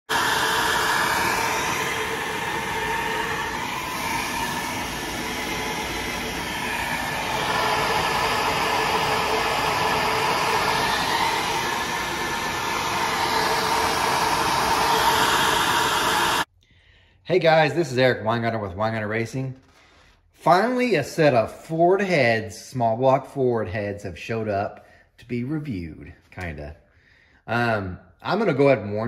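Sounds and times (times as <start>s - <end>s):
flow bench air rushing with hum: 0.0s - 16.5s.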